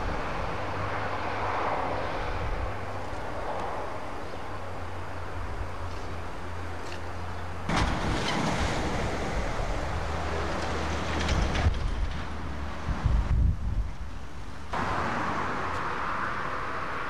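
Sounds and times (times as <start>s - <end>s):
wind buffeting microphone: 7.7s - 14.3s.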